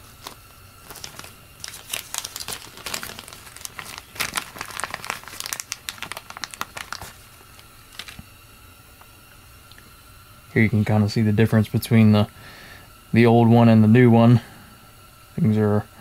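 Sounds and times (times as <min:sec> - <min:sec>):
plastic packaging crinkling: 0:00.0 - 0:08.3.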